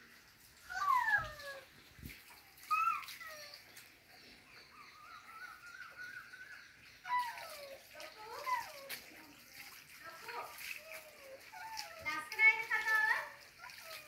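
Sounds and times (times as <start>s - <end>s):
wavering bird call: 4.6s - 7.6s.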